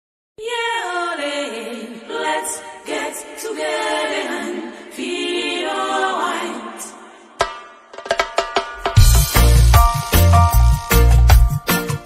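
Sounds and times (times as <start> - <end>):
unaccompanied voices singing in harmony: 0.4 - 7.4.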